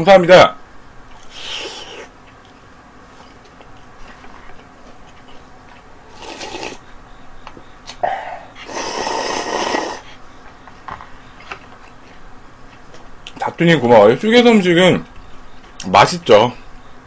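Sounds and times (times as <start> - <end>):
person slurping noodles: 1.3 - 2.1, 6.1 - 6.8, 8.6 - 10.1.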